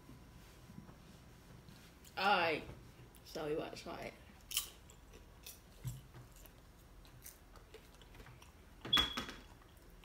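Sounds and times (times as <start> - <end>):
person chewing crunchy popcorn: 4.4 - 8.8, 9.4 - 10.0.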